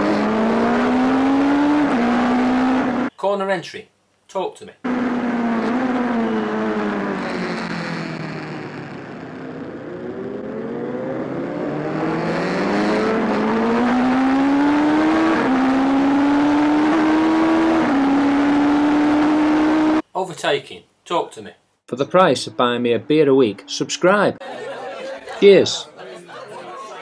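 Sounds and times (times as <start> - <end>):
racing motorcycle engine: 0.0 - 3.1, 4.8 - 20.0, 21.9 - 24.4.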